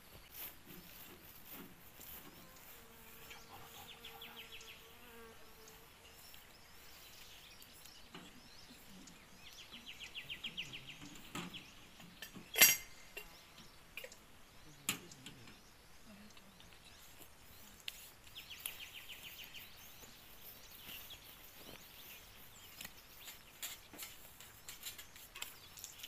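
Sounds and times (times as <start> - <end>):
fly buzzing: 2.2 - 6.5.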